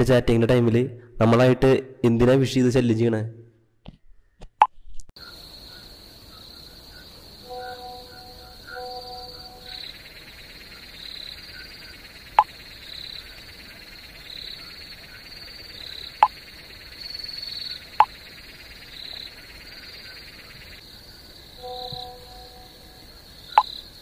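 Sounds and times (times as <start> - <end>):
insects chirring: 5.2 - 24.0.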